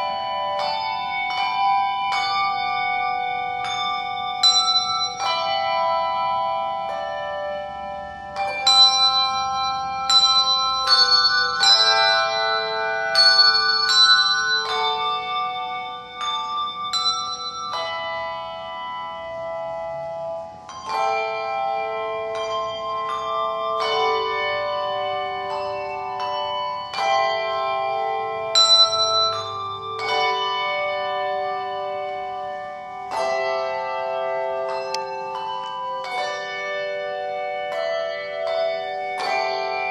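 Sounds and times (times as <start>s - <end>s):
handbell choir playing: 0.0s - 39.9s.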